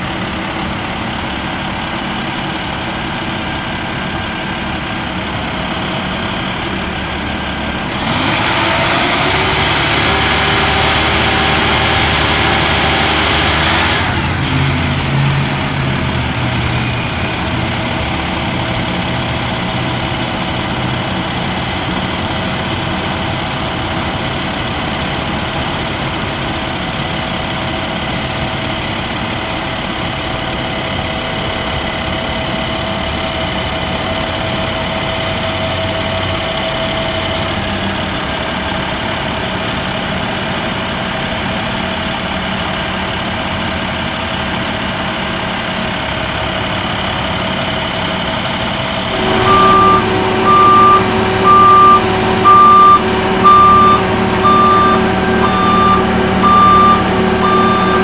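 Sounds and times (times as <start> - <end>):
diesel engine running: 0.0 - 58.0
loud rushing noise: 49.0 - 58.0.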